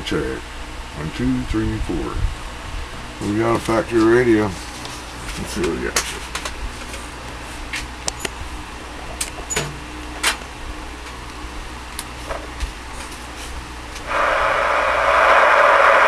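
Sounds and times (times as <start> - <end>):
low hum: 13.9 - 16.0
radio static hiss: 14.0 - 16.0.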